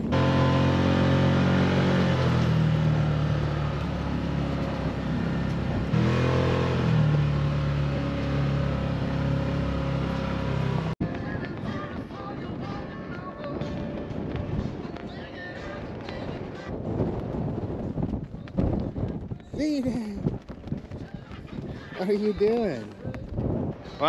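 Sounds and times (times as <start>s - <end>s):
atv engine revving: 0.0s - 11.0s.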